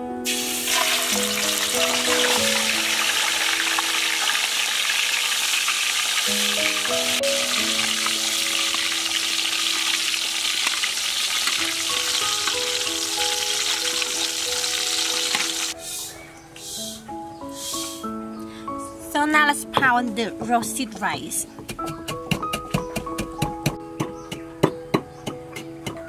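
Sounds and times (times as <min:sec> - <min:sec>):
simple background melody: 0:00.0 - 0:04.5, 0:06.3 - 0:10.0, 0:11.6 - 0:26.0
fish sizzling in hot oil: 0:00.2 - 0:15.8.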